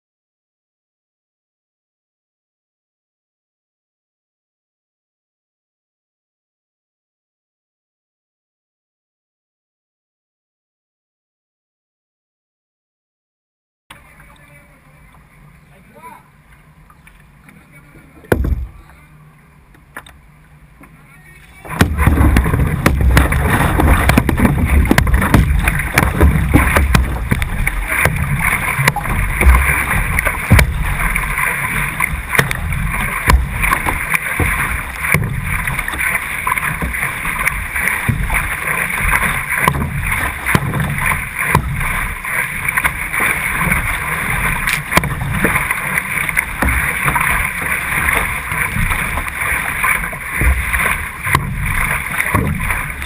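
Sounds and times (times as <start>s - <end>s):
water rushing along canoe: 13.9s - 53.0s
paddle strokes splashing: 14.0s - 53.0s
short knocks: 18.3s - 18.8s, 21.7s - 31.3s, 32.0s - 36.0s
low rumble: 21.6s - 53.0s.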